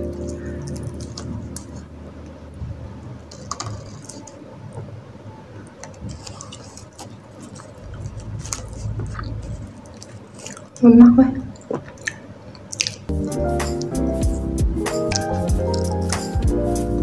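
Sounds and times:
fingers picking meat over paper: 5.8 - 10.8
chewing sounds: 5.8 - 10.9, 11.5 - 13.1.

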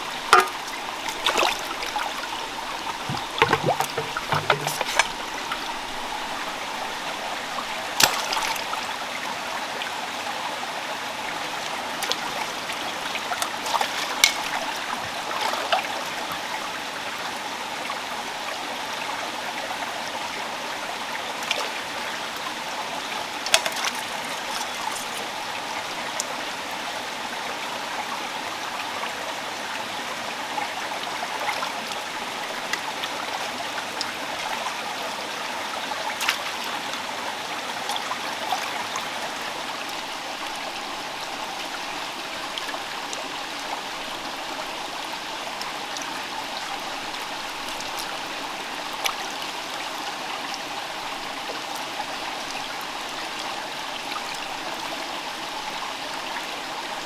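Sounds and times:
stream running over stones: 0.0 - 57.0
short clicks and splashes: 3.0 - 5.2.

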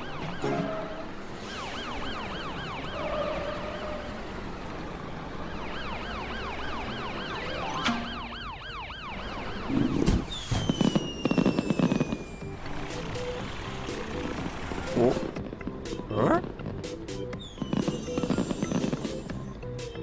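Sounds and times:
cartoon ambulance siren wailing: 0.0 - 4.6, 5.2 - 13.1
fireworks bangs: 9.8 - 12.5, 17.4 - 19.3
falling whistle: 10.3 - 12.5.

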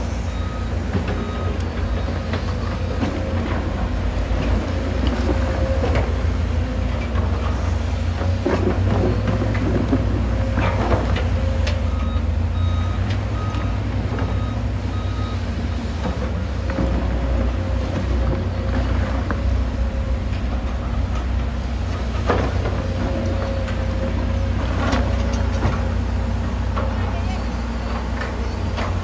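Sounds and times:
excavator diesel engine running: 0.0 - 29.0.

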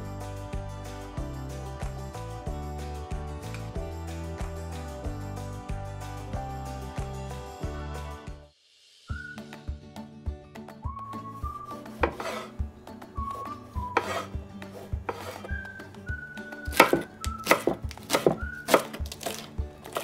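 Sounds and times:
background music with steady beat: 0.0 - 20.0
knife knocking on cutting board: 12.0 - 12.5, 16.7 - 18.8.

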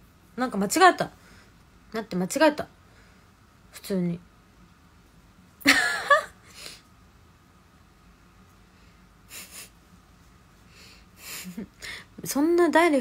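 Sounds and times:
woman's breathy laughter: 5.6 - 6.8.

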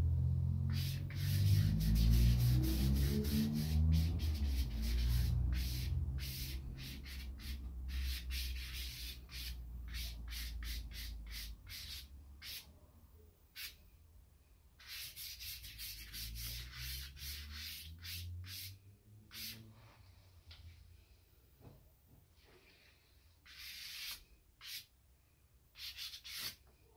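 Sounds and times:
charcoal scratching on paper: 0.7 - 12.6, 14.8 - 18.7, 23.5 - 24.9, 25.8 - 26.6.

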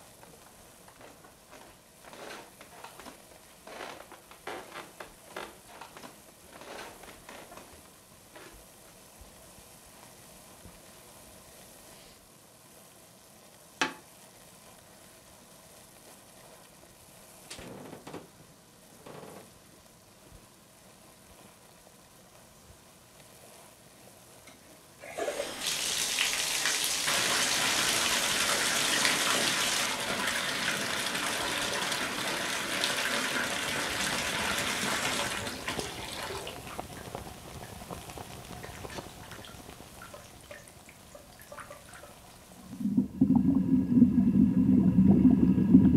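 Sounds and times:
water running into bathtub: 25.0 - 45.9.

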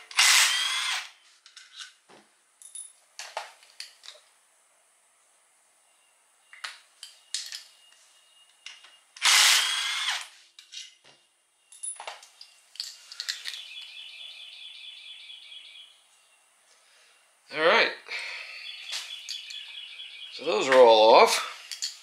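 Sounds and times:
power tool whining: 0.0 - 1.2, 9.2 - 10.3.

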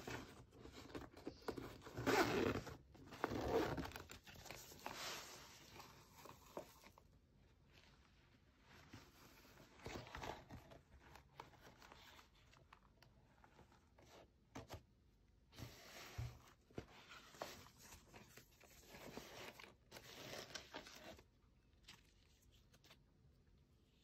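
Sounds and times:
rustling and scraping fabric case: 0.0 - 7.0, 7.7 - 12.7, 15.5 - 21.3.

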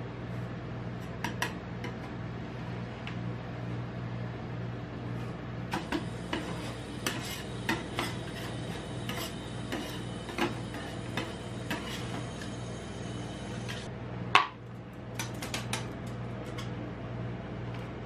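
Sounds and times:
steady low hum: 0.0 - 18.0
metal spatulas scraping steel plate: 5.8 - 12.2.

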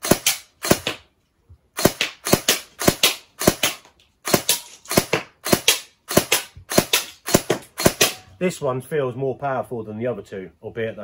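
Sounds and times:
airsoft gun shots: 0.0 - 1.1, 1.8 - 8.2.

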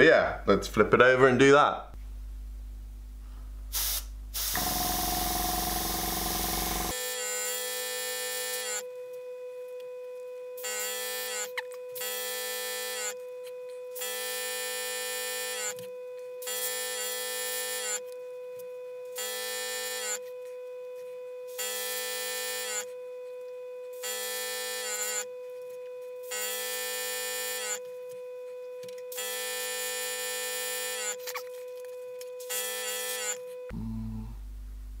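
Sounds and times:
airbrush spraying bursts: 3.7 - 6.9.

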